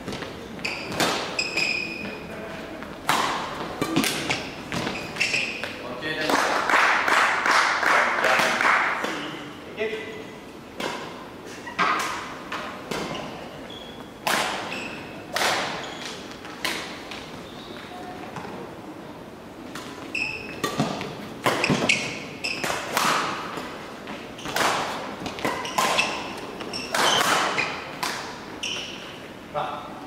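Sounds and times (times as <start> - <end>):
shoes squeaking on floor: 0.0 - 3.0, 3.6 - 5.8, 11.5 - 12.2, 13.0 - 16.6, 19.9 - 23.0, 24.1 - 29.3
rackets striking shuttlecock: 3.0 - 5.8.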